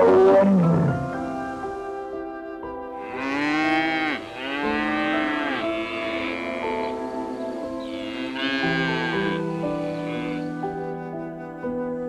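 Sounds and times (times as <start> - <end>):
soft background music: 0.0 - 12.0
cattle mooing: 3.0 - 10.6.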